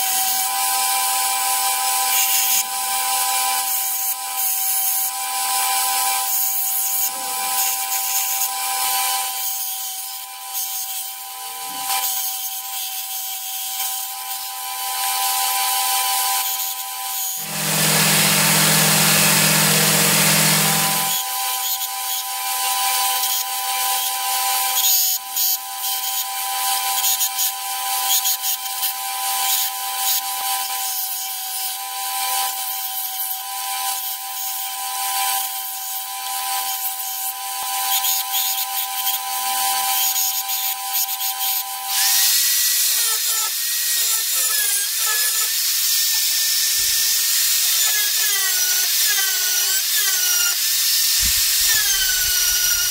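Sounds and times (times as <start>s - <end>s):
power tool motor whine: 14.9s - 23.0s, 41.9s - 52.9s.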